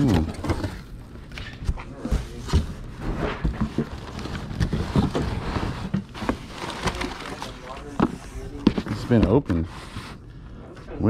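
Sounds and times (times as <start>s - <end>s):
handling knocks and scrapes: 0.0s - 10.2s
newspaper rustling and crackling: 2.8s - 9.2s.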